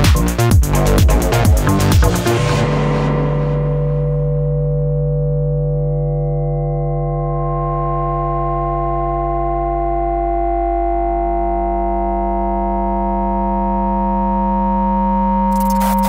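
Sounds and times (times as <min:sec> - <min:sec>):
synthesizer chord: 0:00.0 - 0:08.3
low drone: 0:00.4 - 0:05.4
rush of noise: 0:00.7 - 0:04.7.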